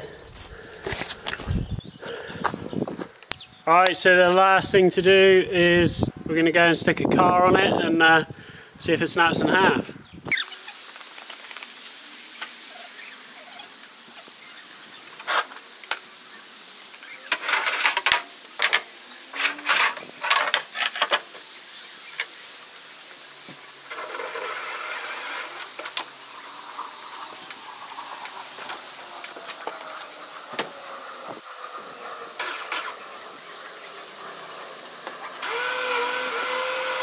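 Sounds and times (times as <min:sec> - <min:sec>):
metal scraping: 0:17.2 - 0:21.2, 0:23.8 - 0:26.0.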